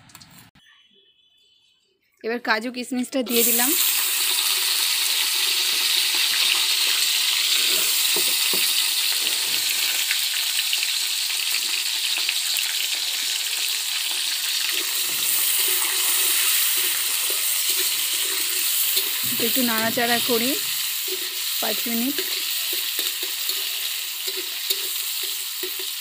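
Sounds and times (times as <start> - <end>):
food sizzling in hot oil: 3.3 - 26.0.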